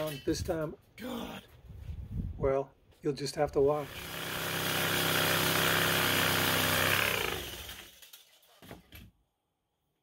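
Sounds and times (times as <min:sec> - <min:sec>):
electric power tool running: 0:03.8 - 0:08.2.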